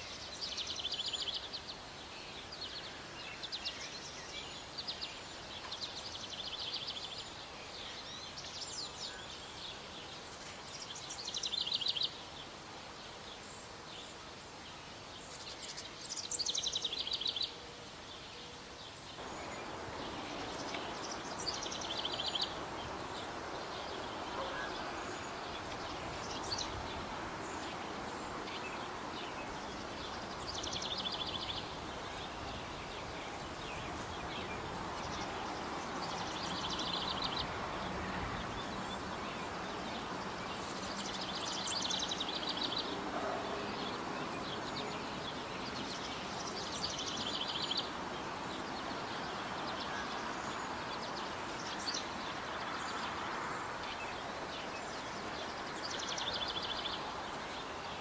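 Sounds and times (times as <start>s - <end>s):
outdoor background hiss: 0.0s - 58.0s
songbird trilling: 19.2s - 35.4s.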